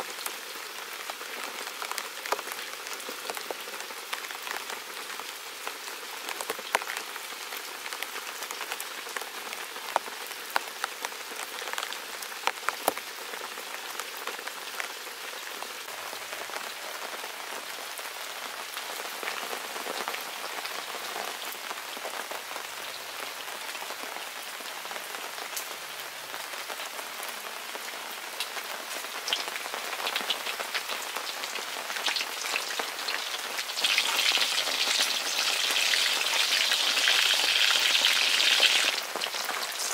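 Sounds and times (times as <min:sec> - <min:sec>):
rain pattering: 0:00.0 - 0:39.9
fish frying in oil: 0:29.2 - 0:39.9.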